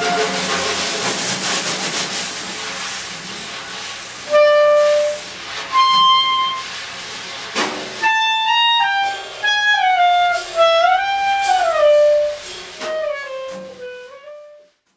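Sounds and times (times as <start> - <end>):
solo wind instrument playing: 4.3 - 6.7, 8.0 - 14.8.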